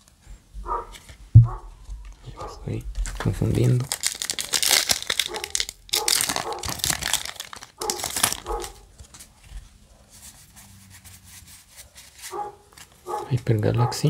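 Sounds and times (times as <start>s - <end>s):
cards being handled: 1.8s - 10.6s, 11.6s - 13.6s
foil wrapper crinkling and tearing: 2.1s - 9.3s.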